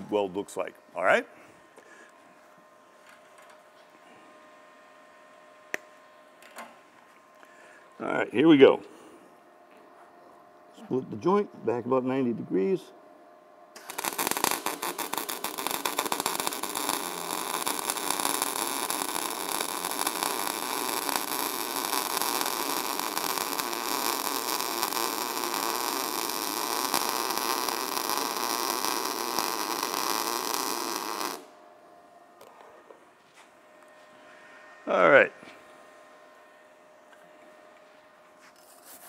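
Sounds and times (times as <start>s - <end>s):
welding arc crackling hiss: 13.8s - 31.6s.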